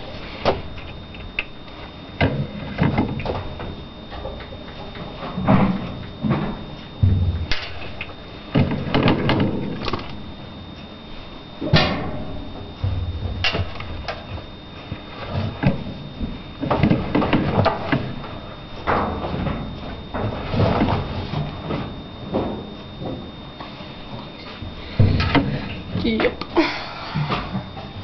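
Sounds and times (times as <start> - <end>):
knocks and bumps: 2.2 - 9.8.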